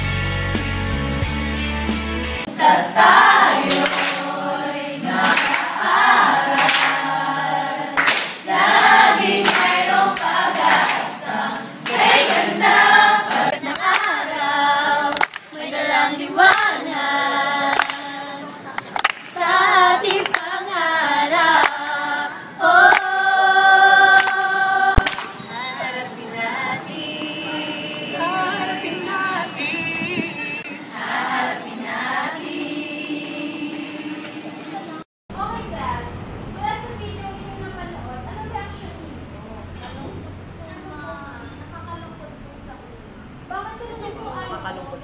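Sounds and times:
group of young voices singing: 0:02.4 - 0:35.0
hand claps: 0:03.7 - 0:04.3, 0:05.2 - 0:05.8, 0:06.6 - 0:07.0, 0:08.0 - 0:08.4, 0:09.4 - 0:11.1, 0:11.9 - 0:12.5, 0:13.3 - 0:14.2, 0:15.1 - 0:15.5, 0:17.7 - 0:18.0, 0:18.8 - 0:19.3, 0:20.1 - 0:20.5, 0:21.6 - 0:21.8, 0:24.2 - 0:25.4.

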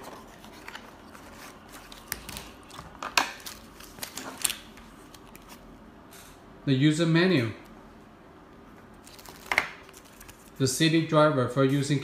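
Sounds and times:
paper rustling: 0:00.0 - 0:05.6.

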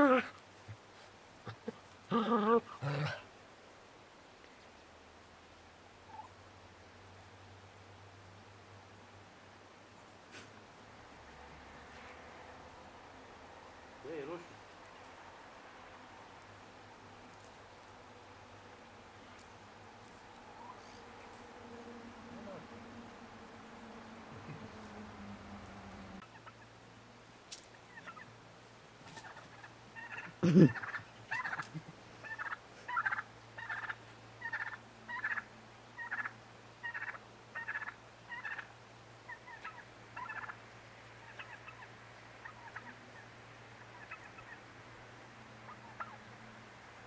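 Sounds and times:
turkey gobbling: 0:06.0 - 0:06.4, 0:20.4 - 0:21.4, 0:26.1 - 0:26.7, 0:27.8 - 0:28.3, 0:29.0 - 0:40.6, 0:41.2 - 0:44.7, 0:45.6 - 0:46.3.

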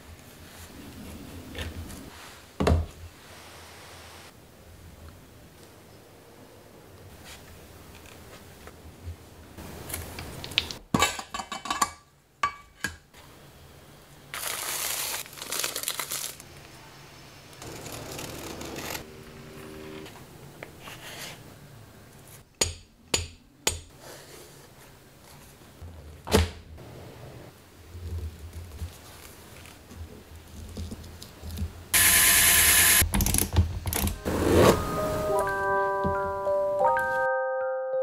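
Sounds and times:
rubbing with plastic crinkling: 0:14.3 - 0:16.8.

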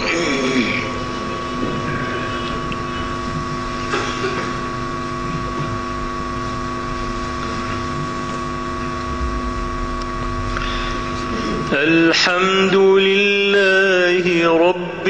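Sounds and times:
high clear hum: 0:00.0 - 0:15.0
low rumble: 0:09.0 - 0:10.9.

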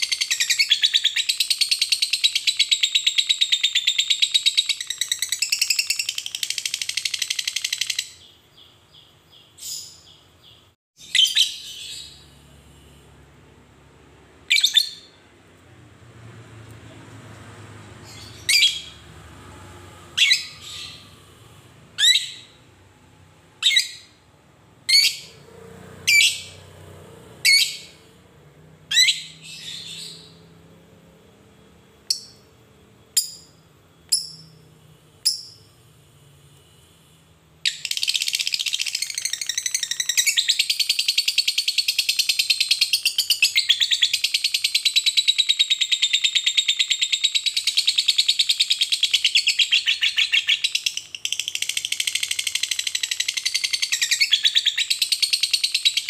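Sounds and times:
lovebird chirping and chattering: 0:00.0 - 0:12.3, 0:14.5 - 0:15.2, 0:18.0 - 0:19.0, 0:20.2 - 0:21.2, 0:22.0 - 0:22.6, 0:23.6 - 0:24.2, 0:24.9 - 0:25.4, 0:26.0 - 0:26.6, 0:27.4 - 0:28.0, 0:28.9 - 0:30.4, 0:37.7 - 0:56.0.

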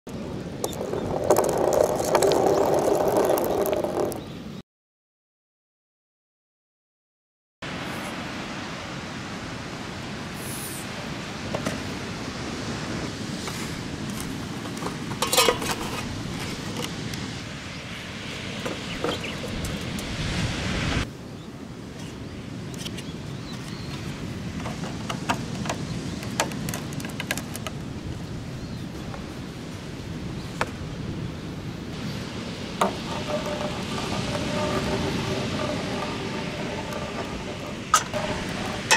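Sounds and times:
wind: 0:00.0 - 0:04.6, 0:07.6 - 0:38.9
sea surf rushing: 0:07.7 - 0:21.2, 0:29.4 - 0:38.9
plastic gutters clicking and knocking: 0:24.5 - 0:27.8
metal pipe knocking: 0:32.8 - 0:38.9.

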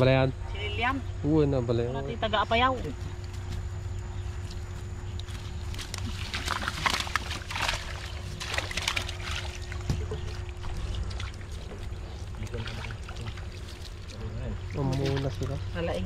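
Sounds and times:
steady low hum: 0:00.0 - 0:16.0
water splashing and sloshing: 0:02.8 - 0:16.0.

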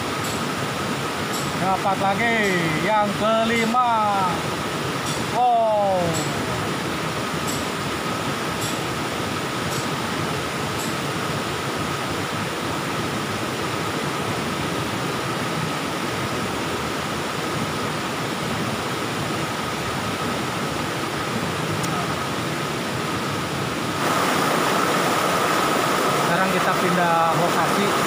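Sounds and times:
stream water rushing over rocks: 0:00.0 - 0:28.0.

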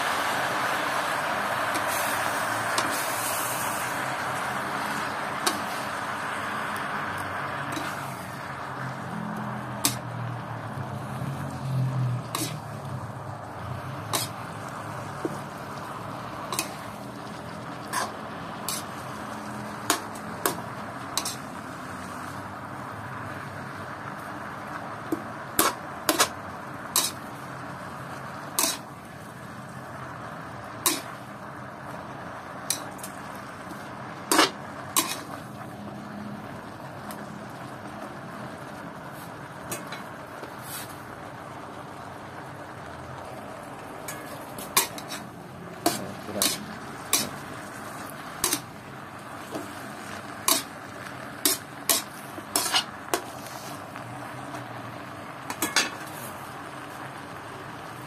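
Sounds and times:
frying sizzle: 0:00.0 - 0:58.0
metal spatula scraping wok: 0:00.5 - 0:22.4, 0:25.1 - 0:29.8, 0:30.7 - 0:31.4, 0:32.6 - 0:35.7, 0:39.1 - 0:41.2, 0:44.0 - 0:53.9, 0:55.5 - 0:56.5.

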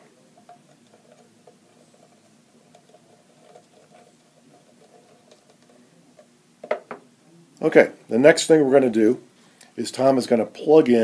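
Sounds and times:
antenna screwing ticks and scratches: 0:00.0 - 0:06.3
faint steady hum: 0:00.0 - 0:11.0.

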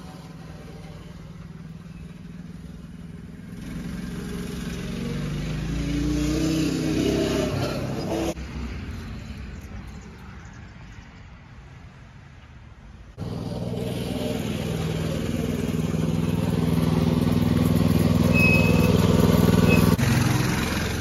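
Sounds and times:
vehicle engine running: 0:13.2 - 0:21.0.

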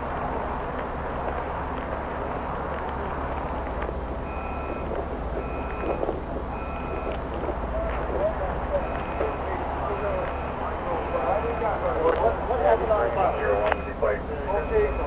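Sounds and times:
idling traffic rumble: 0:00.0 - 0:15.0
electronic warning beeps: 0:04.2 - 0:12.0, 0:12.7 - 0:15.0.

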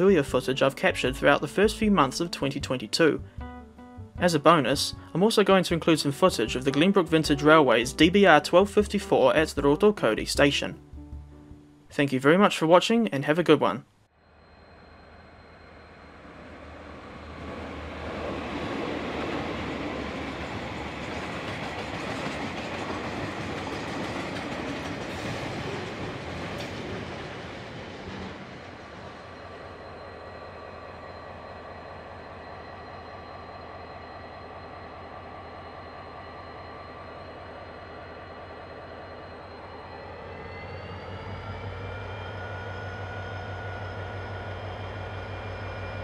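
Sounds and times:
diesel locomotive idling: 0:14.2 - 0:46.0
freight train wheels rumbling: 0:14.4 - 0:46.0.

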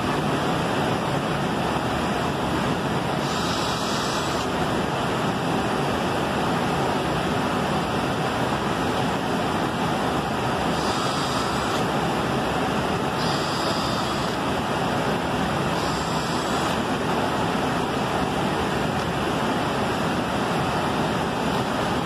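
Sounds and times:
workshop machinery running: 0:00.0 - 0:22.0
electric drill into wood: 0:03.1 - 0:04.6, 0:10.6 - 0:11.9, 0:13.1 - 0:14.6, 0:15.7 - 0:16.9.

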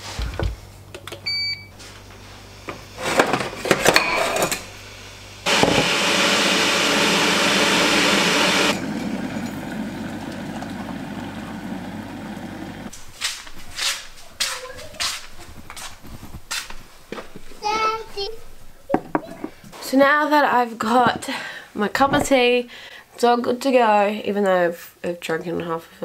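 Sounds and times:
kettle beep: 0:01.2 - 0:01.8, 0:05.5 - 0:12.0
kettle boiling hiss: 0:04.6 - 0:13.0.

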